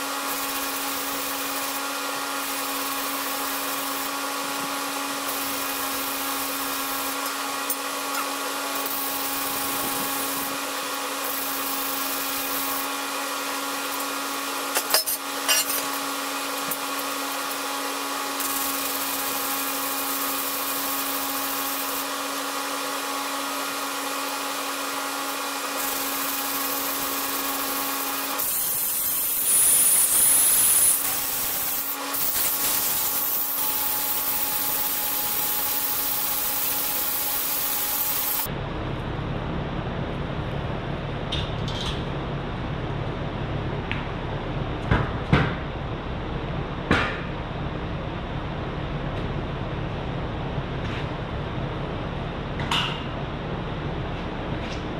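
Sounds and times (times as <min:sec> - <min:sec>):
power tool whirring: 0:00.0 - 0:38.5.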